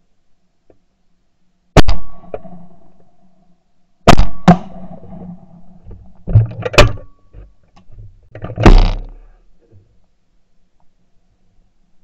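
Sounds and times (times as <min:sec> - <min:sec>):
shotguns firing: 0:04.1 - 0:05.4, 0:08.6 - 0:09.0.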